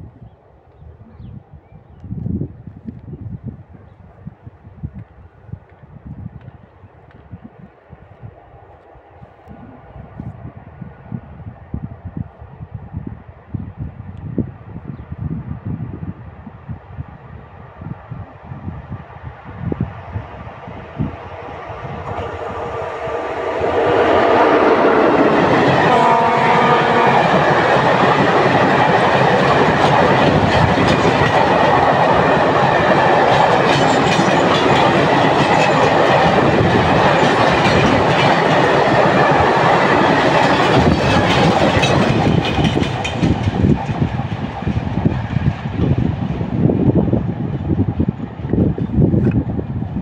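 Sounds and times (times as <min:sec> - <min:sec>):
freight train rumbling past: 0:06.1 - 0:50.0
locomotive horn: 0:22.0 - 0:28.0.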